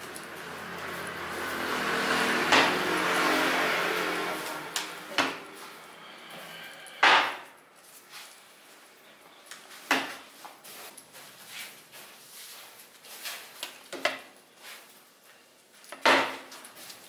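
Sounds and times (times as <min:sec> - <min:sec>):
rushing noise: 0:00.0 - 0:07.2.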